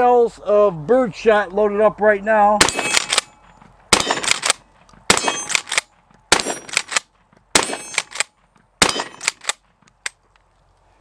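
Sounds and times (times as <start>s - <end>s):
shotgun shots: 2.6s - 9.6s.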